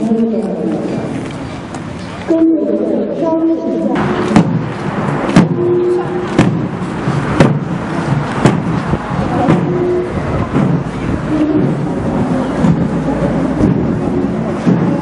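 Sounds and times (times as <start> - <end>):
ceremonial drum beating a march: 4.0 - 15.0.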